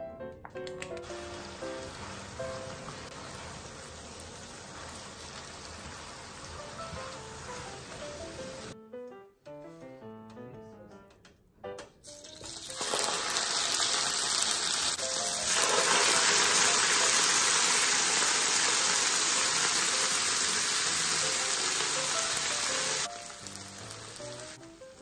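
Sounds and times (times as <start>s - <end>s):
chicken sizzling on hot plate: 1.0s - 8.8s, 12.1s - 25.0s.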